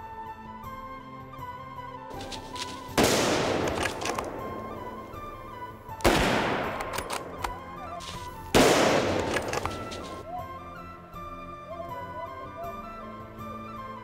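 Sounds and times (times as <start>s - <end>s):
rifle shots echoing: 2.2s - 10.2s.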